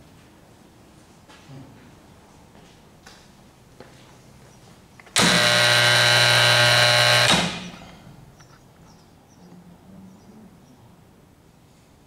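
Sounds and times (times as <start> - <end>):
electric motor humming: 5.2 - 7.8.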